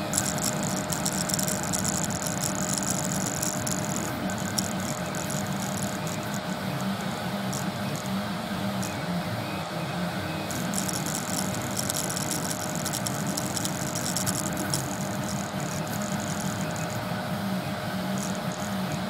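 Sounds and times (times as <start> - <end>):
fine high clicking: 0.0 - 9.0, 10.5 - 17.2, 18.0 - 19.0
stepper motors whirring: 0.0 - 9.2, 10.4 - 19.0
cooling fan hum: 0.0 - 19.0.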